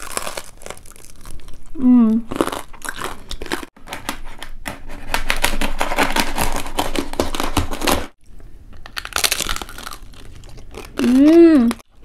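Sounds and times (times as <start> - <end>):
knife crunching crispy pork skin: 0.0 - 1.5, 5.1 - 8.1, 8.9 - 11.4.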